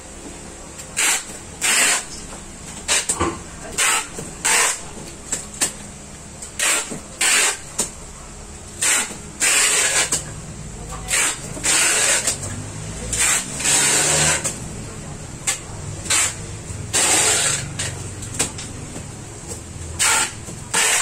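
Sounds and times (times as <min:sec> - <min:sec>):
packing tape pulled off roll: 0:06.6 - 0:07.6, 0:20.0 - 0:21.0.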